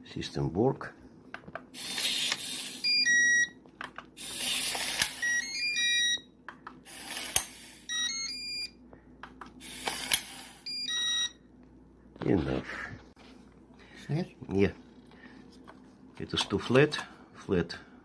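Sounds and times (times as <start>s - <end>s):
small gear motor whirring: 1.8s - 3.0s.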